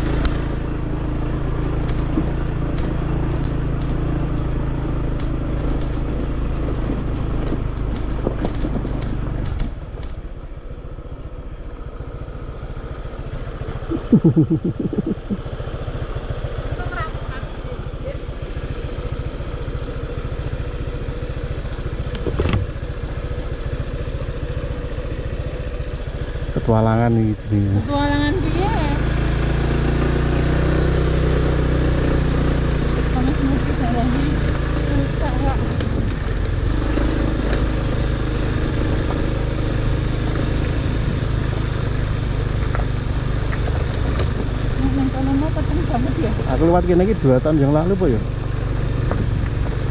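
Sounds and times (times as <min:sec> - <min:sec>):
motorcycle engine running: 0:00.0 - 0:49.9
clicks and knocks from rough ground: 0:06.6 - 0:10.2.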